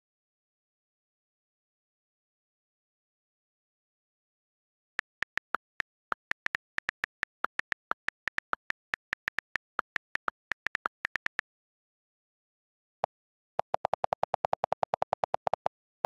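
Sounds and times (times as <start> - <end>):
on-screen keyboard key clicks: 5.0 - 11.4.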